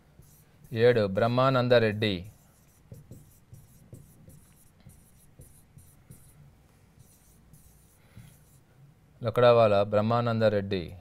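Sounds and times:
stylus scratching and tapping on board: 2.3s - 6.4s.

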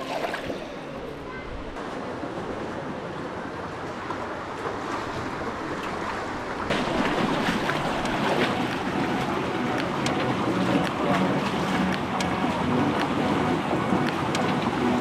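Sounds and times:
water splashing around legs: 4.0s - 15.0s
river water rushing over rocks: 5.1s - 15.0s.

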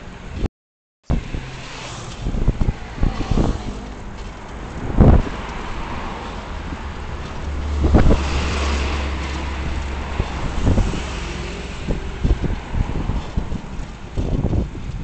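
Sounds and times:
vehicle road and engine noise: 0.0s - 15.0s
wind buffeting microphone: 1.1s - 15.0s.

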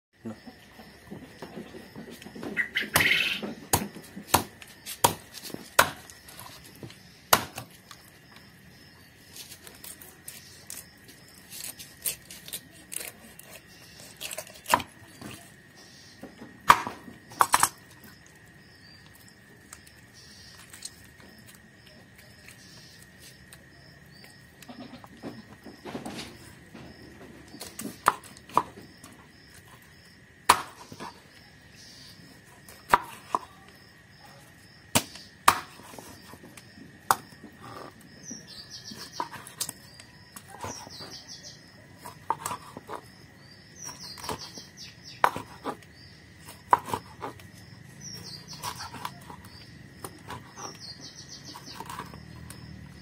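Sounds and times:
knife chopping on wooden board: 2.8s - 6.5s, 14.2s - 15.4s, 16.6s - 17.8s, 30.5s - 31.2s, 34.9s - 36.2s, 42.0s - 43.0s, 45.2s - 45.8s, 46.5s - 47.4s.

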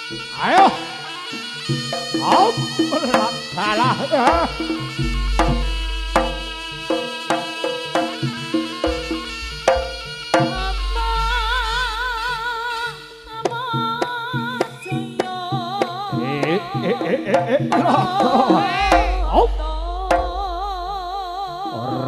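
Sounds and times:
drum strikes: 1.8s - 11.9s, 13.4s - 22.0s
wavering melody line: 18.2s - 21.2s
deep gong notes: 18.8s - 21.4s.

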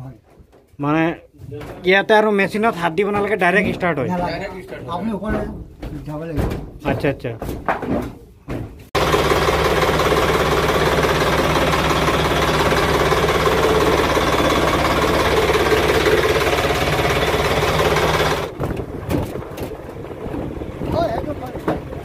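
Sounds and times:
marine diesel engine running: 9.0s - 22.0s.

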